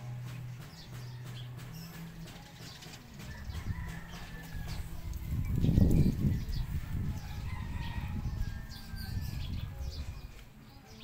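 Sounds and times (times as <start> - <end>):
birds chirping: 0.0 - 11.0
low rumbling on microphone: 3.3 - 10.4.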